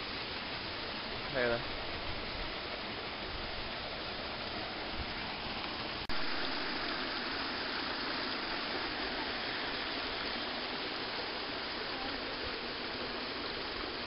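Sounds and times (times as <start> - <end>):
stream rushing over rocks: 0.0 - 14.0.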